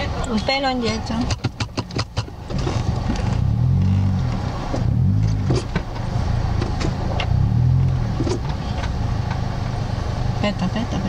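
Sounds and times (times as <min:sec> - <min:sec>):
sharp cracks and knocks: 0:01.2 - 0:03.4
off-road vehicle engine revving: 0:02.0 - 0:11.0.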